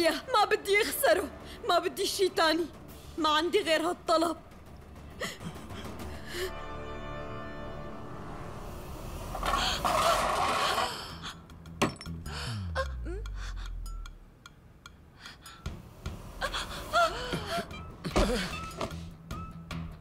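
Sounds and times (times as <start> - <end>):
woman gasping and sobbing: 5.1 - 6.7, 12.2 - 13.9, 16.4 - 19.1.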